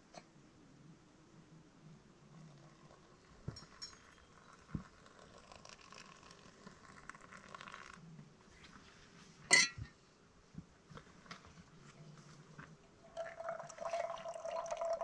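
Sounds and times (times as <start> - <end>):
hot water pouring into dripper: 2.2 - 8.0, 13.0 - 15.0
metal kettle clinking on rock: 3.5 - 4.5, 9.5 - 9.8.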